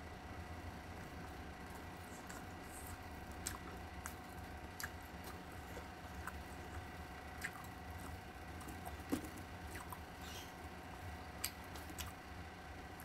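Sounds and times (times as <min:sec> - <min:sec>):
faint steady hum: 0:00.0 - 0:13.0
chewing and wet squishes: 0:01.6 - 0:12.2.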